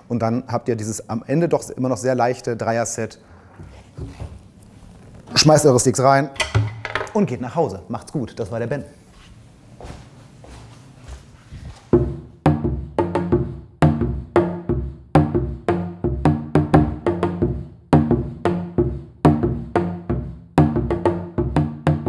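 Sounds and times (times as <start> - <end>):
hand drums playing groove: 12.0 - 22.0.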